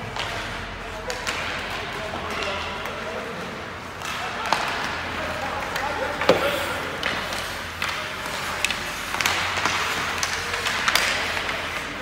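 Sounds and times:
hockey sticks clacking on puck: 0:00.0 - 0:12.0
skate blades scraping ice: 0:03.0 - 0:12.0.

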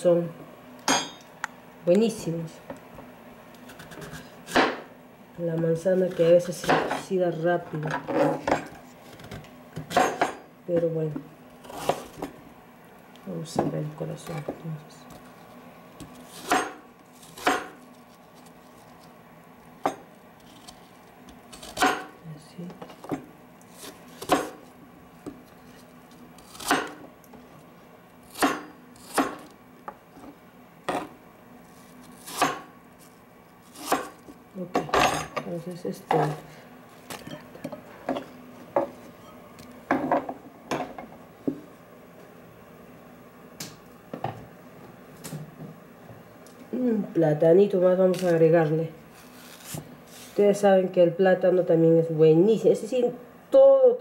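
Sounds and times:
knife chopping on cutting board: 0:03.8 - 0:04.9, 0:16.1 - 0:17.8, 0:21.5 - 0:22.1, 0:23.8 - 0:24.6, 0:26.4 - 0:27.0, 0:28.3 - 0:29.5, 0:32.2 - 0:32.7, 0:33.7 - 0:34.2.

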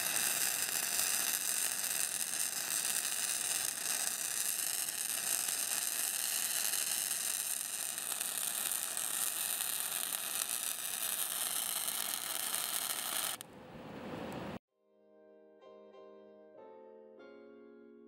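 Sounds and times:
welding arc hissing: 0:00.0 - 0:13.4.

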